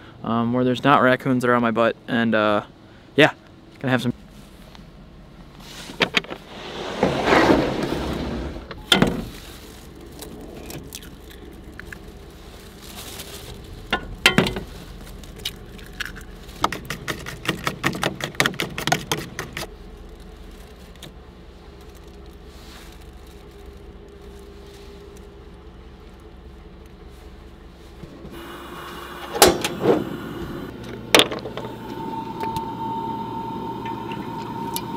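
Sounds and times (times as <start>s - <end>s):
wooden drawer sliding open: 5.8s - 9.5s, 29.2s - 30.2s.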